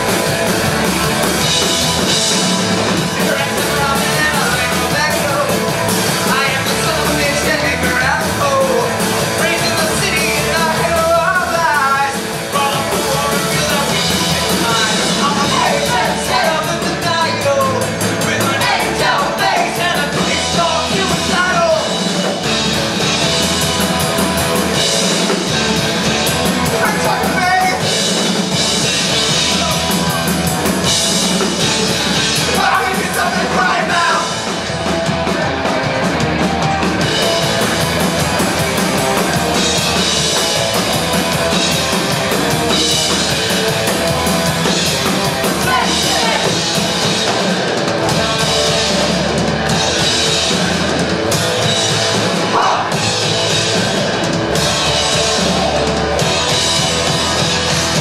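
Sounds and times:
drum kit: 0.0s - 58.0s
electric guitars: 0.0s - 58.0s
person singing: 45.5s - 46.7s.

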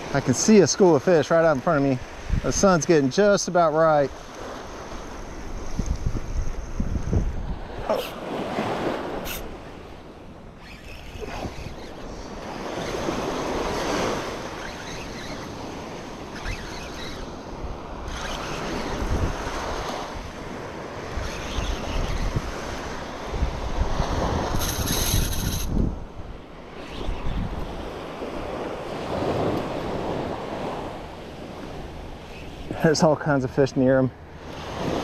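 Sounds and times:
wind gusting on microphone: 1.4s - 3.1s, 4.0s - 35.0s
small waves breaking on sand: 7.0s - 25.9s, 26.5s - 35.0s.

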